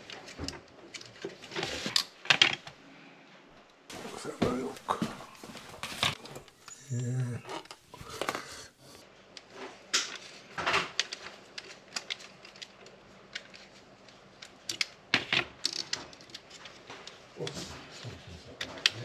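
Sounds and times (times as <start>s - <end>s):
clicks and knocks of small parts: 0.0s - 2.8s, 9.3s - 17.3s.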